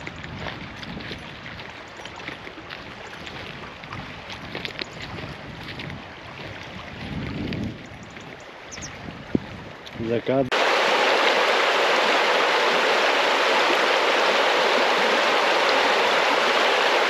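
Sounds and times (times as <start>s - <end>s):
wind buffeting microphone: 0.0s - 10.5s.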